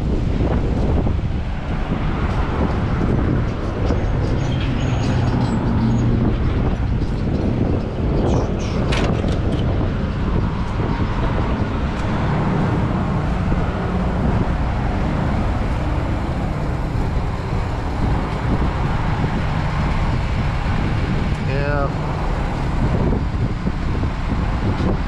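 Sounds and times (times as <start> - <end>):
diesel engine idling: 10.0 - 24.7.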